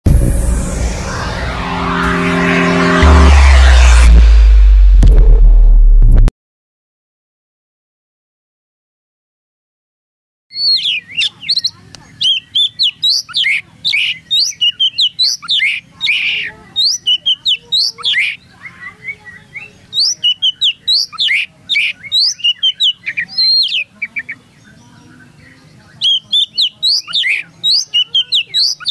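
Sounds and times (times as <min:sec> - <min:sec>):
bird singing whistled notes: 0:10.5 - 0:28.9.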